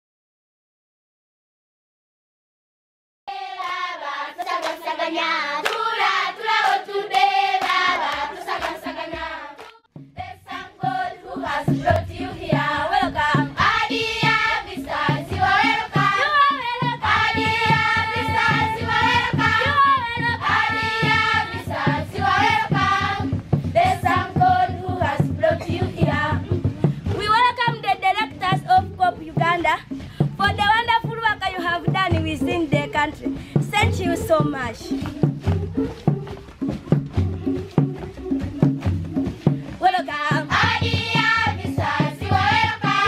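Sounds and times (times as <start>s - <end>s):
group of voices singing: 3.3s - 27.2s, 34.9s - 43.0s
steady rhythmic beat: 4.4s - 43.0s.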